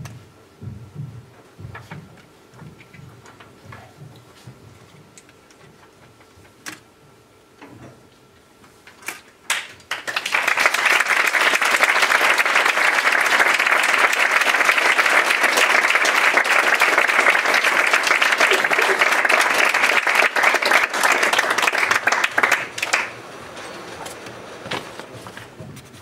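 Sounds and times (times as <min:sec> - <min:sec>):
audience applause: 0:09.5 - 0:23.4.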